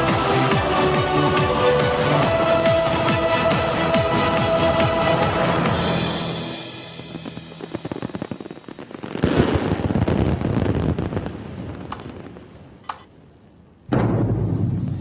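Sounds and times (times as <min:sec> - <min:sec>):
fireworks crackling: 0:05.3 - 0:15.0
heavy fireworks boom: 0:05.6 - 0:12.8, 0:13.8 - 0:15.0
fireworks bangs: 0:05.8 - 0:15.0
sharp fireworks cracks: 0:06.2 - 0:15.0.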